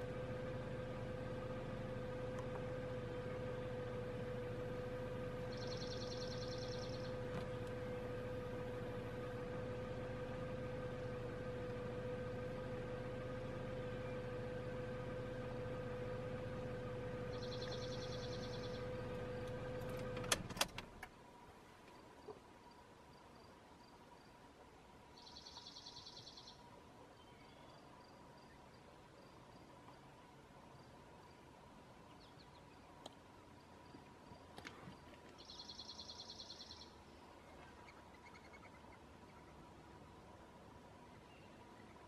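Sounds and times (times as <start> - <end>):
car engine idling: 0.0 - 21.1.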